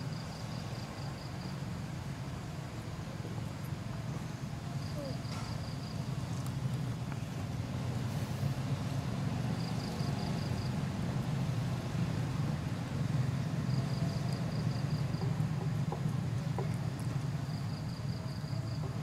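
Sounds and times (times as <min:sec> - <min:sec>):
rapid high insect chirping: 0:09.3 - 0:10.9, 0:13.2 - 0:15.8.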